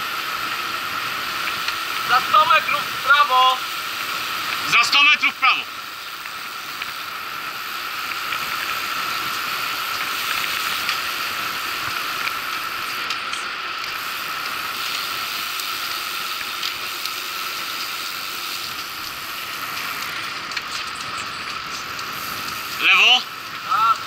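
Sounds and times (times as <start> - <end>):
bicycle riding noise: 0.0 - 24.0
faint steady whine: 0.0 - 24.0
small ticks: 6.0 - 7.1.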